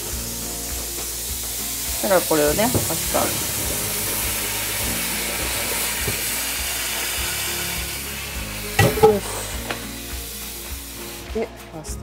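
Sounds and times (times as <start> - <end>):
tap running: 0.6 - 11.4
metal clanks: 8.8 - 9.8.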